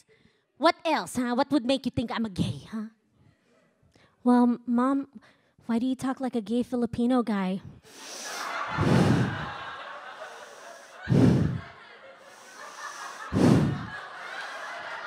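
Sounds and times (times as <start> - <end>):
audience laughing: 8.1 - 15.0.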